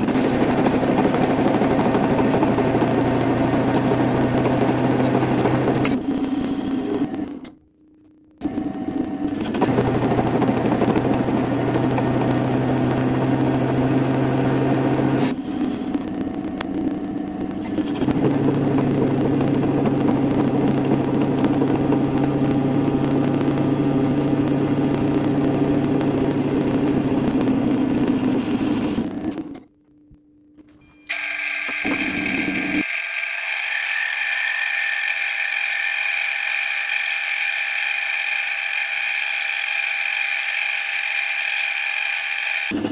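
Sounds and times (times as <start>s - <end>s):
metal lathe running: 0.0s - 7.0s, 31.1s - 42.9s.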